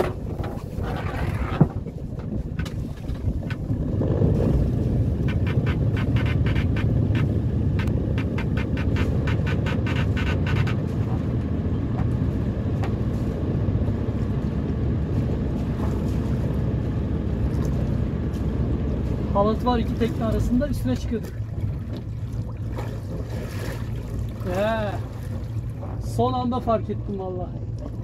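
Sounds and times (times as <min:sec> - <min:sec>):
boat engine rumbling: 0:00.0 - 0:28.0
rapid even ticking: 0:05.2 - 0:10.8.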